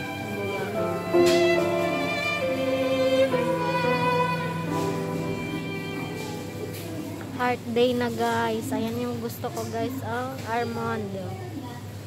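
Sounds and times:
slow melody of held notes: 0.0 - 7.9.

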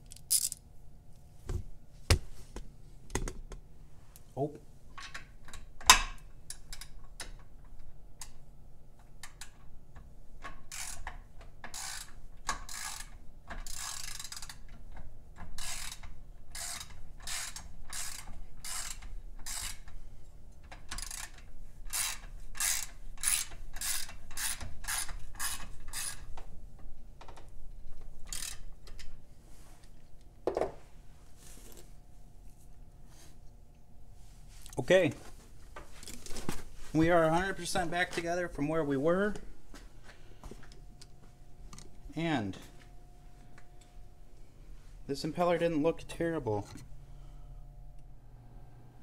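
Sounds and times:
ratchet wrench clicking: 0.0 - 0.6, 10.7 - 14.6, 15.6 - 19.9, 20.9 - 26.2, 28.3 - 28.7.

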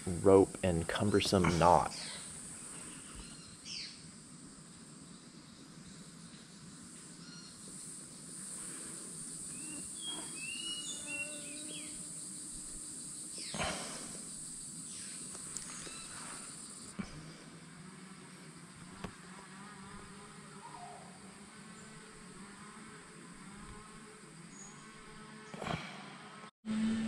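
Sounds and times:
high-pitched insect drone: 5.1 - 16.9.

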